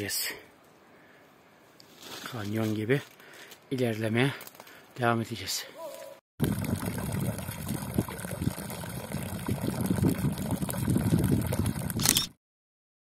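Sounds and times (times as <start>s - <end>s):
water pouring into stone trough: 6.4s - 12.0s.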